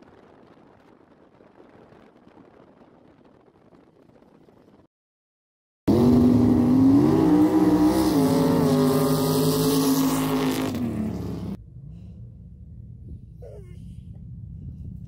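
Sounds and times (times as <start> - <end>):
buggy engine revving high: 5.9 - 11.6.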